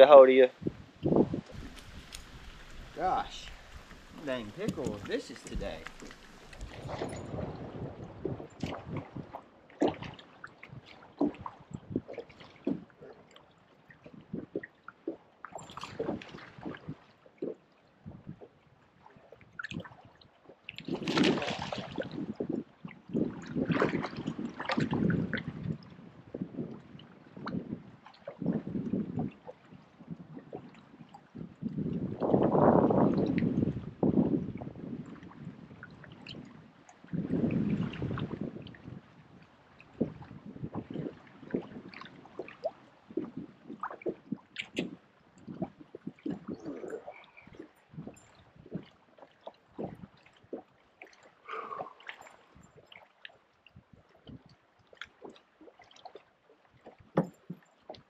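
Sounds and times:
water gurgles and splashes: 0.0s - 58.0s
water lapping against boat hull: 0.0s - 58.0s
fish splashing in water: 1.6s - 7.4s, 20.9s - 22.1s.

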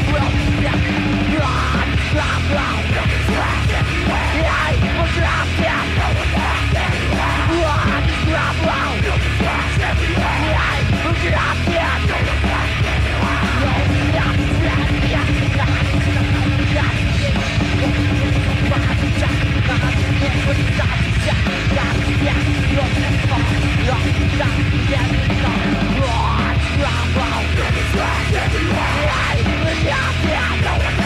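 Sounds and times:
death metal band playing: 0.0s - 31.0s
harsh yelled vocals: 0.0s - 31.0s.

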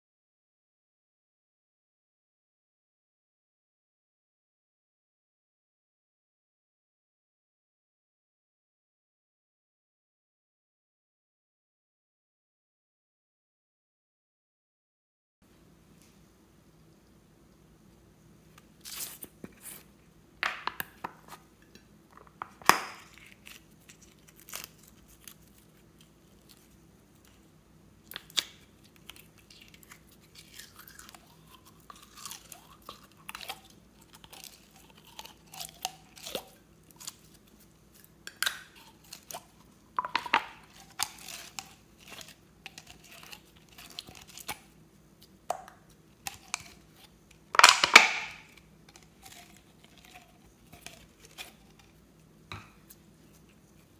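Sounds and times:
slime squelching: 22.6s - 53.9s.

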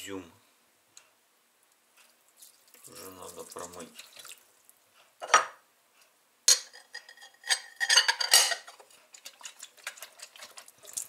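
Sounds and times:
ceramic plate and bowl clinking: 6.5s - 8.7s.

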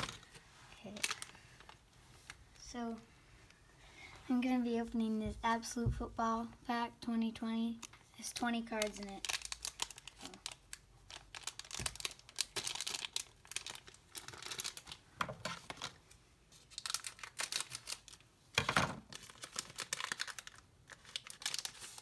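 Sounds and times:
plastic wrapper crinkling and tearing: 0.0s - 2.4s, 7.7s - 22.0s.

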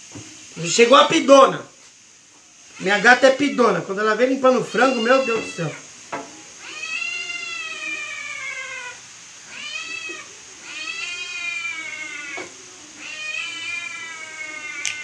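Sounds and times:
cat meowing: 2.8s - 5.9s, 6.6s - 15.0s.

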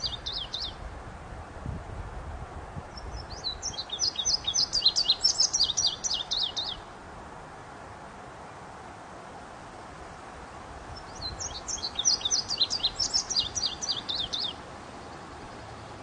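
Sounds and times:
songbird chirping: 0.0s - 0.8s, 2.9s - 7.0s, 9.8s - 16.0s
steady background hiss: 0.0s - 16.0s.

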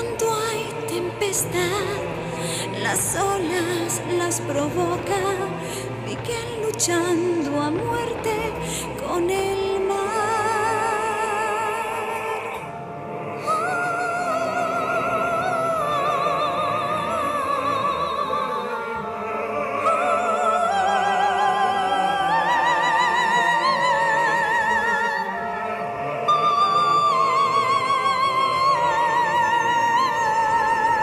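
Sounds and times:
woman singing with vibrato: 0.0s - 31.0s.

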